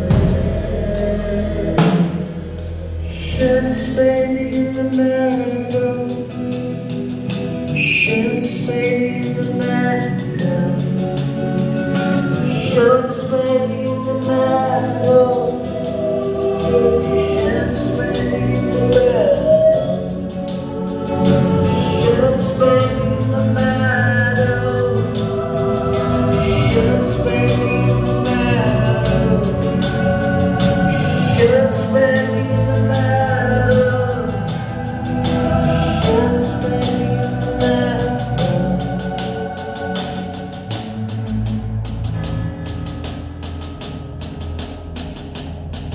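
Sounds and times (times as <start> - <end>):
man singing: 0.0 - 41.3
vocal harmonies: 0.0 - 45.4
acoustic guitar: 0.0 - 45.9
drum kit with light cymbals: 0.0 - 45.9
keyboards: 0.0 - 45.9
live band music: 0.0 - 45.9.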